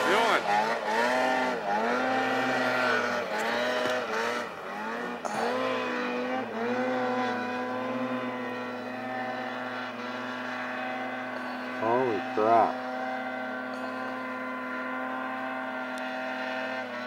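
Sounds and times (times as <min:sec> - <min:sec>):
snowmobile engine running hard: 0:00.0 - 0:17.0.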